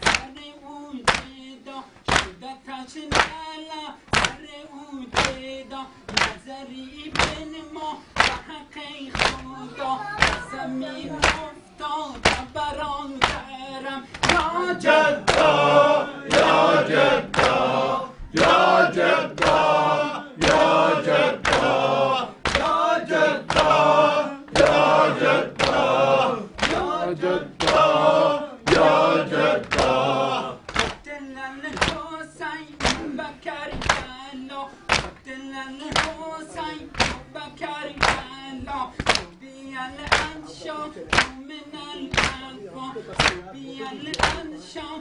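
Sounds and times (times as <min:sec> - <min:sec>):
hands beating the chest: 0:00.0 - 0:00.3, 0:01.1 - 0:01.4, 0:02.1 - 0:02.4, 0:03.1 - 0:03.4, 0:04.1 - 0:04.4, 0:05.1 - 0:05.4, 0:06.1 - 0:06.4, 0:07.1 - 0:07.5, 0:08.2 - 0:08.4, 0:09.1 - 0:09.5, 0:12.2 - 0:13.5, 0:14.2 - 0:14.5, 0:15.2 - 0:15.5, 0:21.4 - 0:21.7, 0:22.4 - 0:22.8, 0:26.6 - 0:26.9, 0:30.7 - 0:31.0, 0:31.7 - 0:32.0, 0:32.7 - 0:34.2, 0:34.9 - 0:35.2, 0:35.9 - 0:36.2, 0:36.9 - 0:37.3, 0:38.0 - 0:39.3, 0:40.0 - 0:40.4, 0:41.1 - 0:41.4, 0:42.1 - 0:42.5
men chanting a lament: 0:00.0 - 0:45.0.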